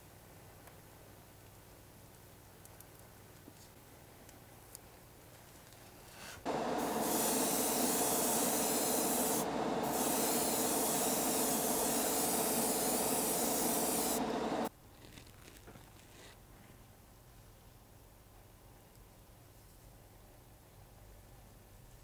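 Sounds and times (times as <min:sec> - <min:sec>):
extractor fan humming: 0:06.5 - 0:14.7
paint spraying hiss: 0:06.5 - 0:14.7.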